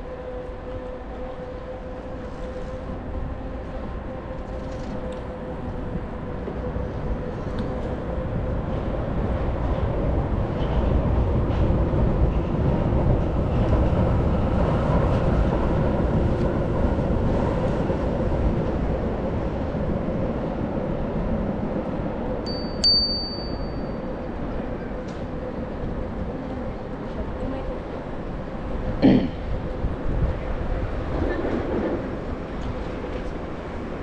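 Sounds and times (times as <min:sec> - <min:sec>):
wind on microphone: 0:28.5 - 0:34.0.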